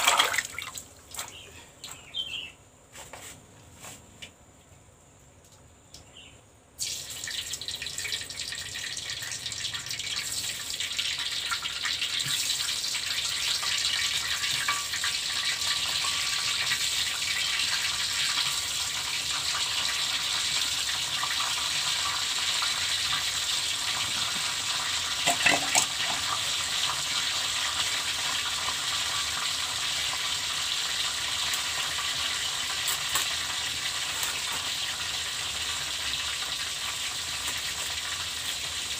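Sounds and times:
frying sizzle in a wok: 6.7 - 38.9.

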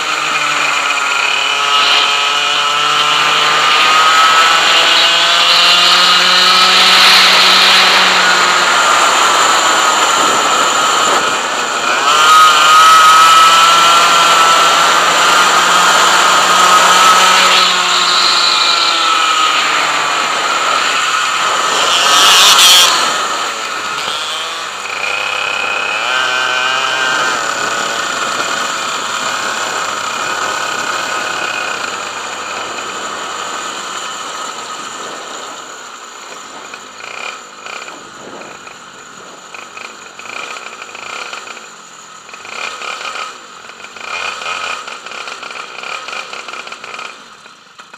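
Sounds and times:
kart engine revving: 0.0 - 47.9.

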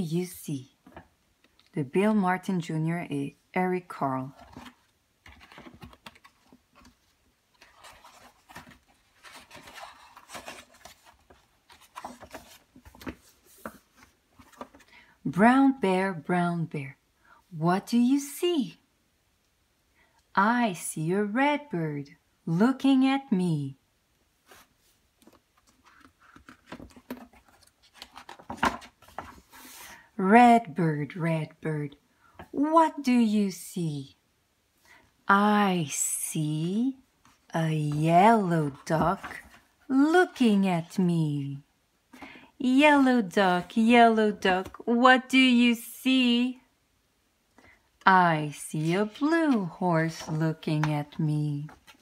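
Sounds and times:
book pages turning: 4.3 - 15.0, 24.4 - 30.1, 37.2 - 39.7, 48.8 - 52.0.

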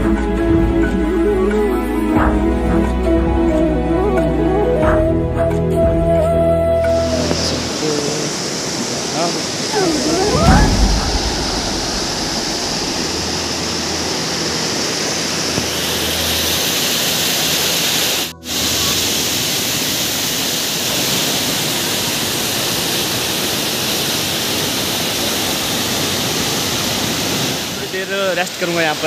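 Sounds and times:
stream rushing over rocks: 7.1 - 29.0
low thump: 9.8 - 14.0.

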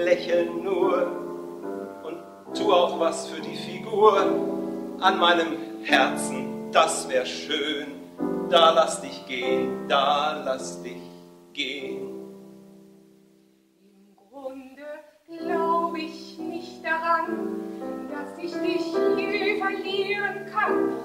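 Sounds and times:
piano accompaniment: 0.0 - 13.4, 15.4 - 21.0
woman singing: 13.8 - 21.0.

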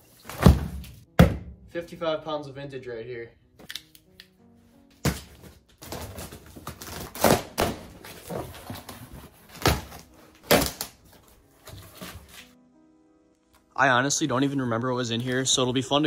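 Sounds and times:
cardboard box thumps: 0.3 - 1.5
cardboard tearing and scraping: 5.8 - 12.6.

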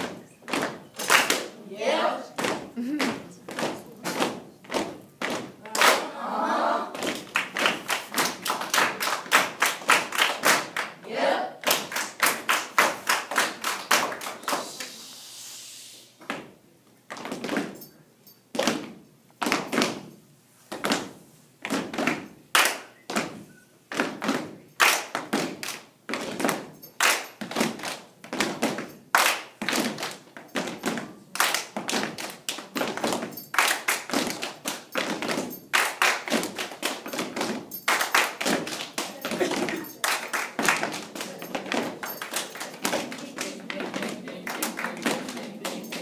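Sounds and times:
body percussion thumps: 0.0 - 1.2, 2.4 - 5.6, 27.4 - 40.0
rhythmic hand claps: 0.0 - 1.6, 2.3 - 6.2, 6.9 - 11.0, 11.6 - 14.8, 20.7 - 46.0.

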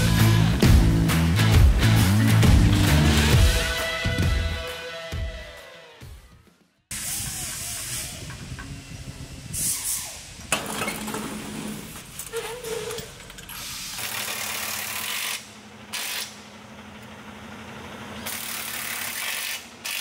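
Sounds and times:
air hiss bursts: 6.9 - 10.5, 13.5 - 14.4.

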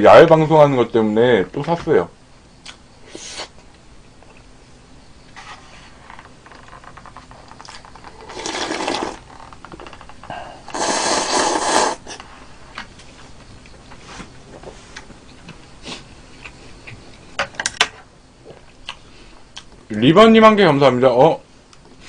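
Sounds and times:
loud noodle slurping: 8.2 - 9.3, 10.7 - 12.2.

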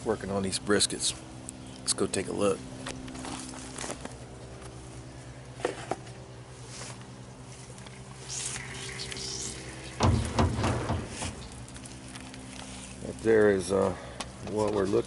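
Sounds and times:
steady low hum: 0.0 - 15.0
metal lid creaking: 9.2 - 11.8
heavy low thumps: 10.0 - 11.6.

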